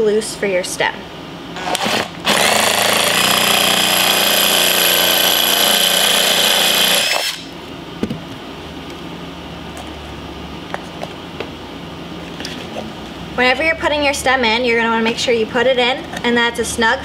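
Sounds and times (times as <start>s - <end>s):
cordless drill boring through gourd: 1.6s - 7.5s.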